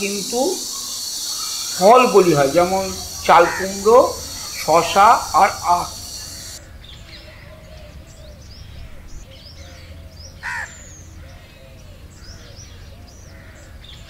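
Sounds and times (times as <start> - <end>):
crow cawing: 0.0 - 6.6, 9.7 - 12.6, 13.3 - 13.8
small birds chirping: 0.0 - 14.0.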